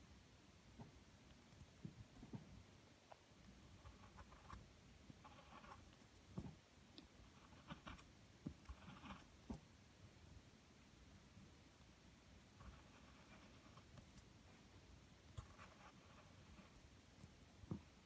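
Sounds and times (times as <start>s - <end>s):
pencil scratching on paper: 5.2s - 6.5s, 7.3s - 8.1s, 8.7s - 9.3s, 12.6s - 14.3s, 15.4s - 16.8s.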